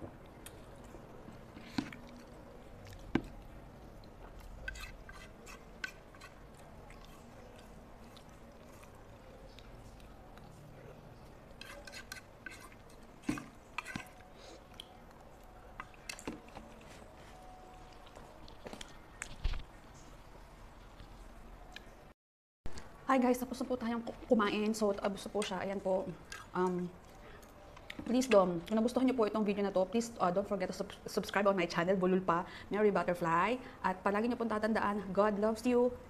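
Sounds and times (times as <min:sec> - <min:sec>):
chewing: 0:00.2 - 0:20.1, 0:26.2 - 0:28.8.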